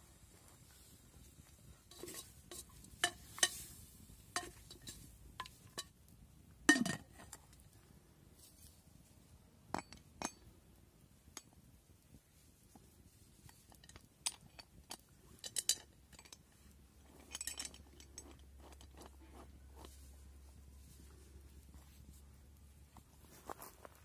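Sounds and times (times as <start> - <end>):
metal pot lid clinking: 1.9 - 3.7, 4.3 - 6.0, 6.7 - 7.3.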